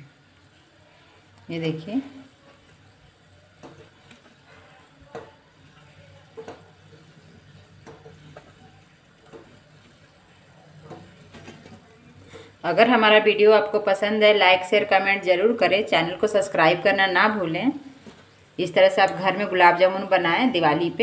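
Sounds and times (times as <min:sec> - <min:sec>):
balls plopping into syrup: 0:05.0 - 0:10.0.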